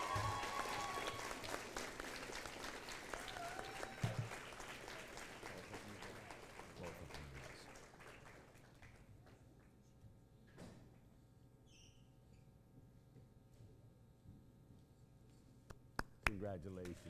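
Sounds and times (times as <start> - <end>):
audience applause: 0.0 - 9.1.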